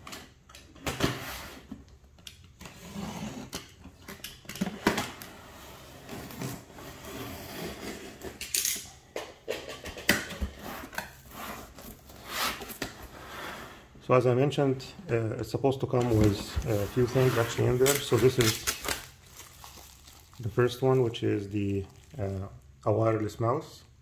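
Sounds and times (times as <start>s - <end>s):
cardboard rustling and scraping: 10.4s - 13.8s, 16.1s - 20.2s.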